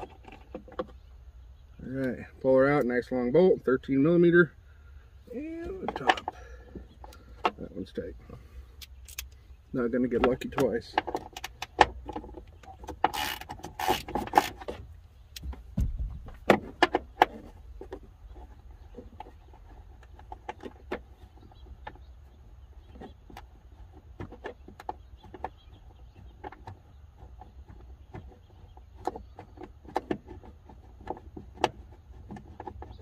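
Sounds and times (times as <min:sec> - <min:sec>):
ratchet wrench clicking: 0:13.0 - 0:14.6.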